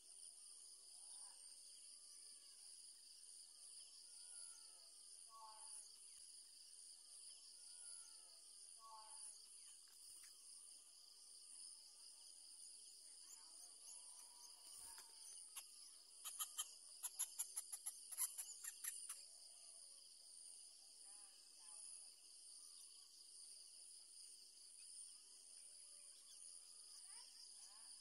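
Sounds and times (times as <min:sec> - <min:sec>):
high-pitched insect trilling: 0:13.9 - 0:19.3.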